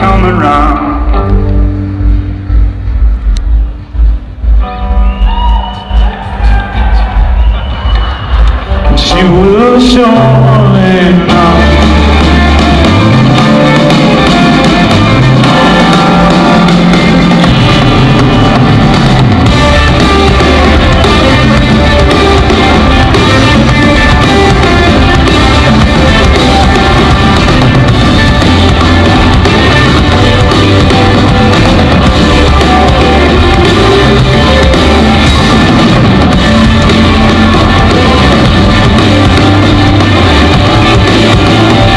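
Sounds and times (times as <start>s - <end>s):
bass line: 0.0s - 41.9s
live rock band playing: 0.0s - 41.9s.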